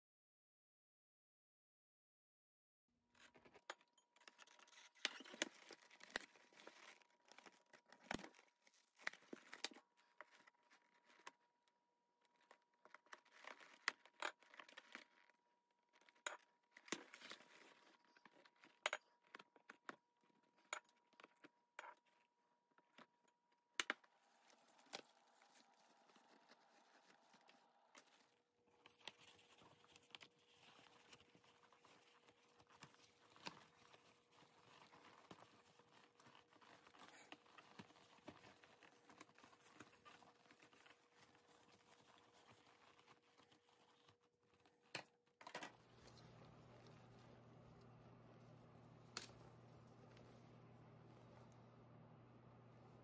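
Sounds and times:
old leather rustling and crinkling: 4.4 - 11.4, 24.0 - 45.0.

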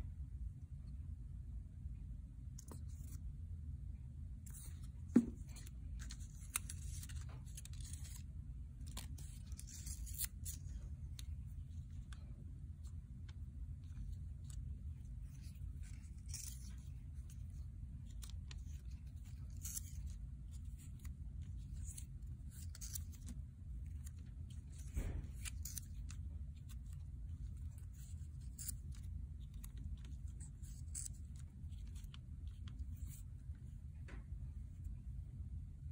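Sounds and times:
steady low hum: 0.0 - 35.9
paper rustling and crackling: 4.5 - 12.3, 13.3 - 33.3.

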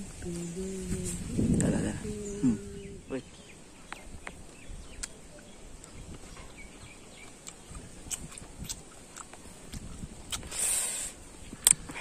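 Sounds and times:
faint bird chirps: 1.8 - 7.5
crunching and chewing mango: 7.2 - 10.7.

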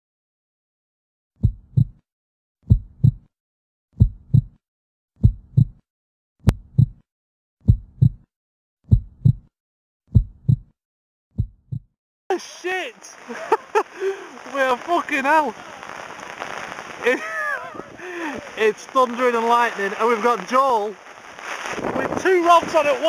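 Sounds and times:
heartbeat thumps: 1.4 - 2.0, 2.7 - 3.3, 4.0 - 4.6, 5.2 - 5.8, 6.4 - 7.0, 7.6 - 8.3, 8.9 - 9.5, 10.1 - 10.7, 11.4 - 11.9.

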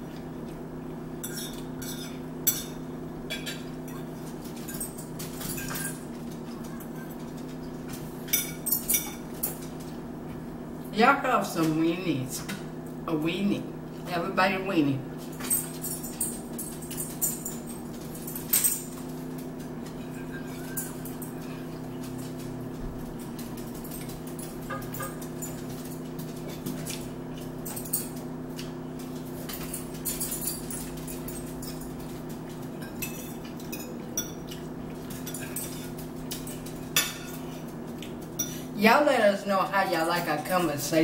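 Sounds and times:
steady low hum: 0.0 - 41.0
forks clinking on plates: 1.2 - 9.7, 15.2 - 22.6, 23.2 - 38.7.

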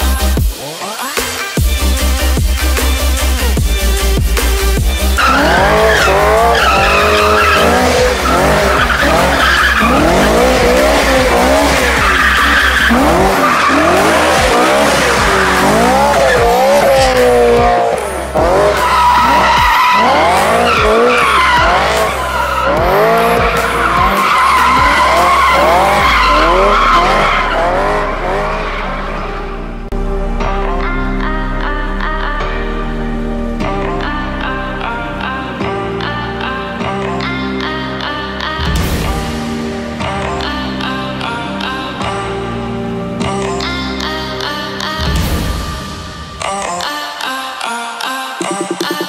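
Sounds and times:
tyres squealing: 5.1 - 29.2.

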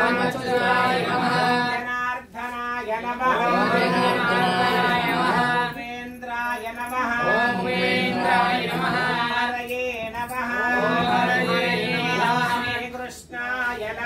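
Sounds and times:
man chanting melodically: 10.2 - 14.0.

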